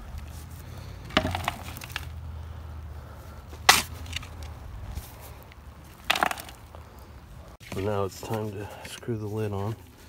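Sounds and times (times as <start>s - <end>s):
low steady rumble: 0.0s - 7.6s
shovel scraping in dirt: 3.6s - 5.3s.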